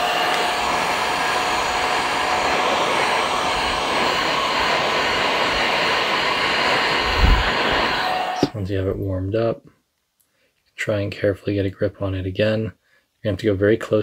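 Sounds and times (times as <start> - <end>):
heat gun blowing air: 0.0 - 8.6.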